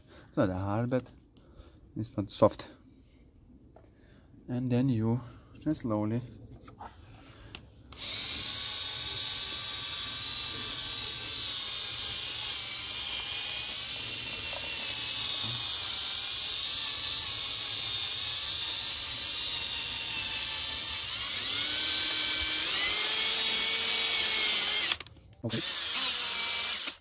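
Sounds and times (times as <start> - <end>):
drill motor whining: 7.9 - 27.0.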